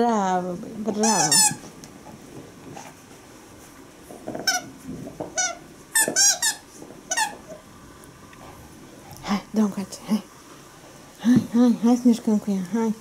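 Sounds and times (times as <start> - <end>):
squeaky toy squeaking: 1.0 - 1.6, 5.4 - 7.4
dog chewing: 1.0 - 9.3.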